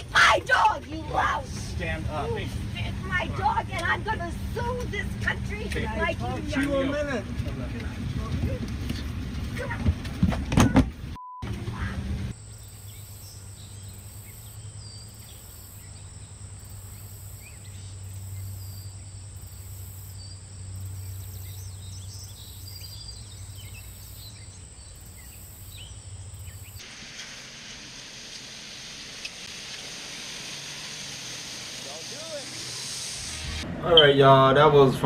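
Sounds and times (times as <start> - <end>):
brief beep: 11.2 - 11.6.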